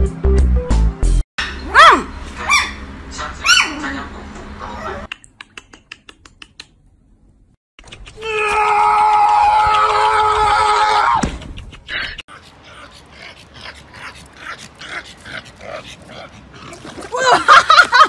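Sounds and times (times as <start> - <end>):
puppy yipping: 1.4 - 2.8, 3.4 - 3.8.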